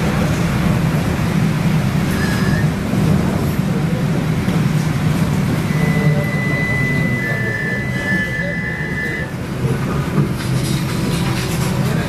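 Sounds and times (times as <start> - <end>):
trolleybus cabin rumble: 0.0 - 12.0
faint high tone: 5.7 - 9.3.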